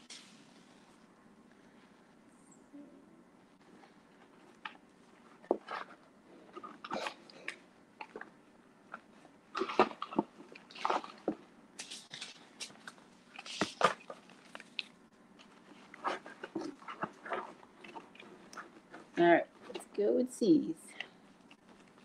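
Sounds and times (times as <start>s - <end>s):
paper seed packets rustling: 11.8s - 20.3s.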